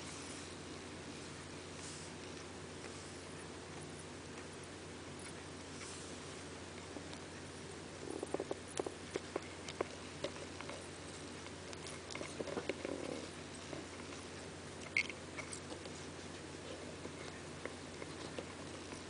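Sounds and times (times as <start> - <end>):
low steady hum: 0.0 - 19.0
beetle chewing clicks and crackles: 6.7 - 16.0.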